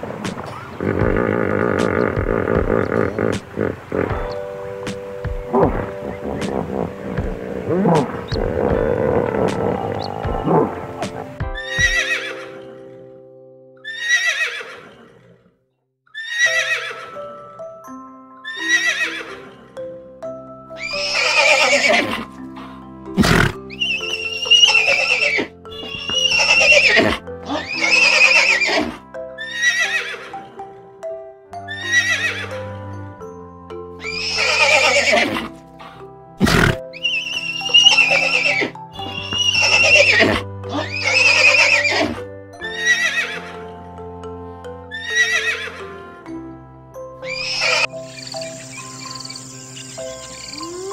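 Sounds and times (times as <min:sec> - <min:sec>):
background music with low notes: 0:00.0 - 0:14.0, 0:16.3 - 0:50.9
horse whinnying: 0:00.6 - 0:04.5, 0:05.5 - 0:12.8, 0:13.8 - 0:15.4, 0:16.1 - 0:17.2, 0:18.4 - 0:19.6, 0:20.8 - 0:22.3, 0:23.2 - 0:30.5, 0:31.7 - 0:32.6, 0:34.0 - 0:35.6, 0:36.4 - 0:43.6, 0:44.9 - 0:45.8, 0:47.2 - 0:48.0.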